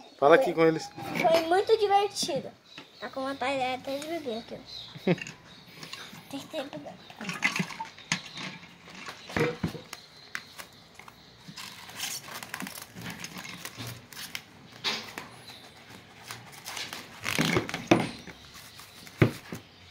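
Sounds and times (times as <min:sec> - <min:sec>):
spoon and plastic cup clinking: 0:07.2 - 0:09.8.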